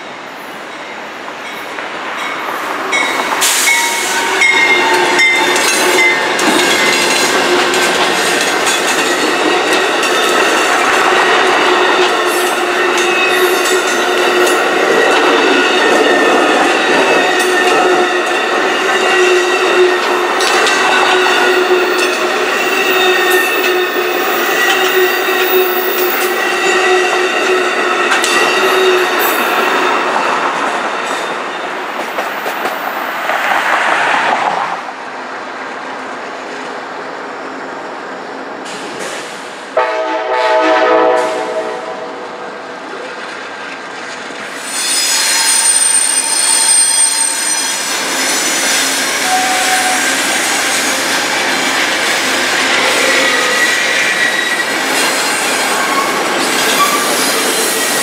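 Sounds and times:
train wheels squealing on rails: 0.0 - 34.6, 38.2 - 39.7, 42.6 - 58.0
train horn blast: 39.8 - 42.6, 49.2 - 50.4.

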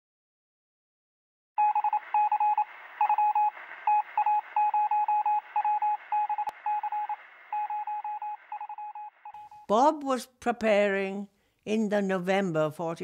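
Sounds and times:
morse code tone: 1.6 - 9.7
radio hiss: 2.0 - 9.3.

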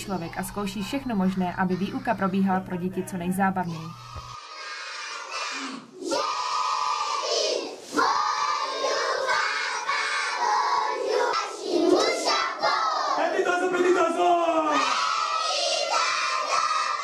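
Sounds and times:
children singing in unison: 4.0 - 13.3, 14.8 - 17.0.

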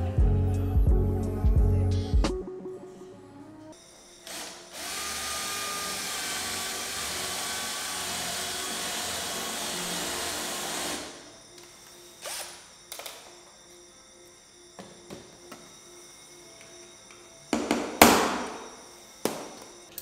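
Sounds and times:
cordless drill boring a hole: 4.2 - 11.3, 12.2 - 12.7.

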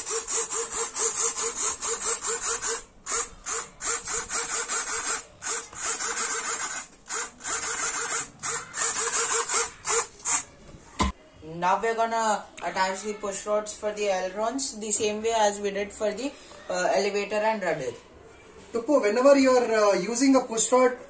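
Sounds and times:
micro servos buzzing: 0.0 - 10.5.

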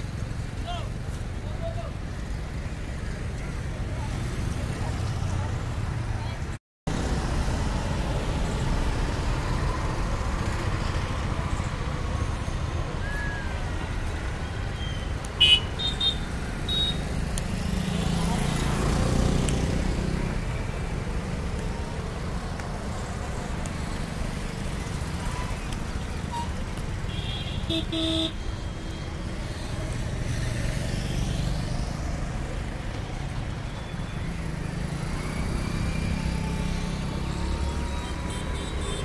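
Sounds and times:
road traffic passing: 0.0 - 39.0
double horn toot: 27.1 - 28.4.

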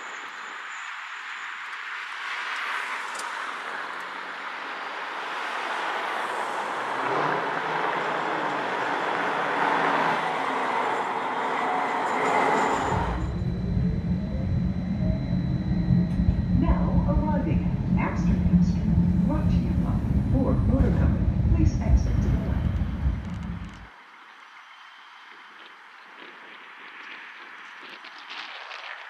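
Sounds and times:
road traffic with tyre noise: 0.0 - 16.6, 17.3 - 29.0
streetcar interior rumble: 6.4 - 23.9
electric motor whine: 7.0 - 23.9.

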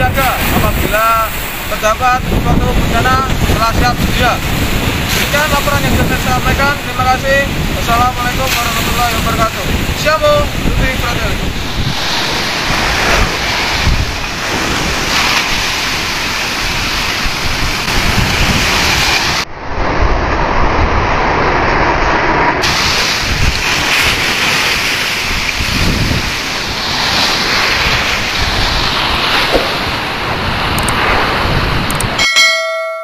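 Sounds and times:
sea waves breaking against a wall: 0.0 - 32.3
wind buffeting microphone: 0.0 - 32.3
water splashing: 4.3 - 19.5, 22.6 - 31.8.

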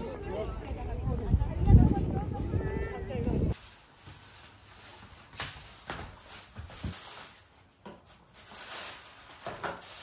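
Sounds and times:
footsteps: 3.5 - 8.0
rustling: 3.5 - 10.0.

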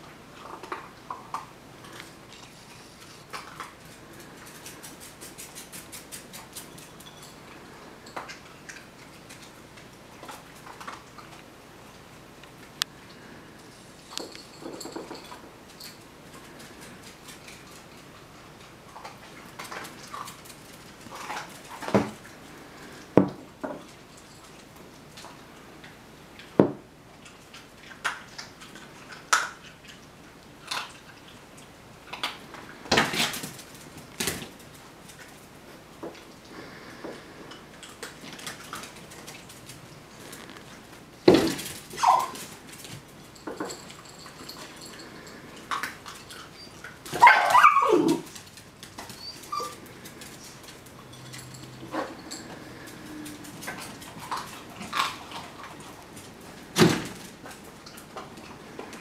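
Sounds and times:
dog barking and whining: 41.9 - 42.5, 46.3 - 48.4, 49.0 - 49.9.

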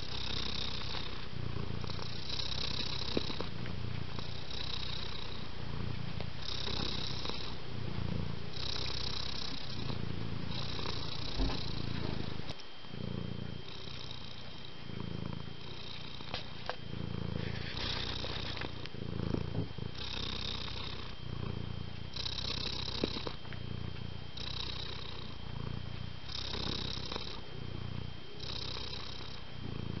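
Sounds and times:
cat purring: 0.0 - 30.0.

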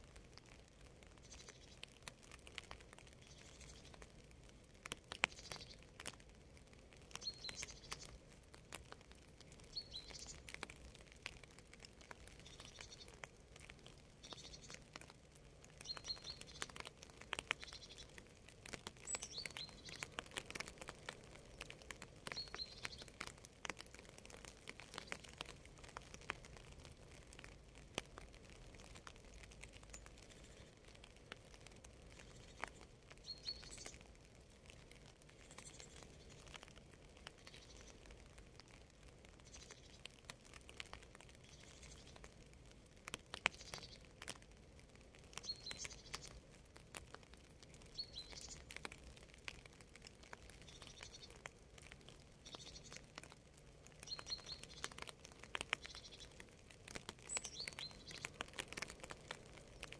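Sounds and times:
raindrops pattering and dripping: 0.0 - 59.9
bird chirping: 3.2 - 4.0, 7.1 - 8.2, 9.7 - 10.4, 12.4 - 13.2, 14.2 - 14.8, 15.8 - 16.8, 17.5 - 18.2, 19.0 - 20.2, 21.5 - 23.2, 32.1 - 34.0, 45.4 - 46.3, 47.9 - 48.7, 52.4 - 53.0, 54.0 - 55.0, 55.8 - 56.4, 57.2 - 58.3.

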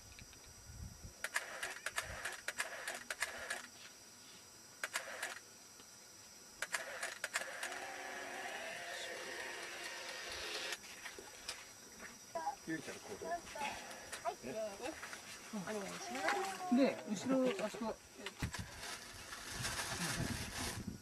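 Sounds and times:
steady hiss: 0.0 - 21.0
camera shutter clicking: 1.2 - 3.7, 4.8 - 5.4, 6.6 - 8.6.

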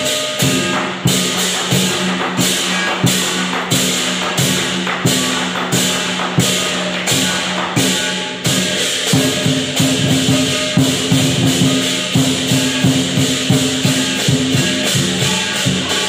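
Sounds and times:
cymbals clashing: 0.0 - 16.0
large drum beating: 0.0 - 16.0.

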